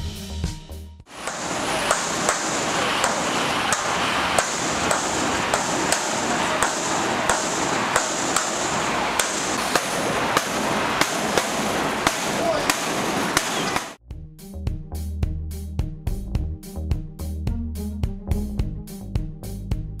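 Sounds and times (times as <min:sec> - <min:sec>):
steady background noise: 0:01.1 - 0:14.0
stick banging on a metal gate: 0:01.2 - 0:14.0.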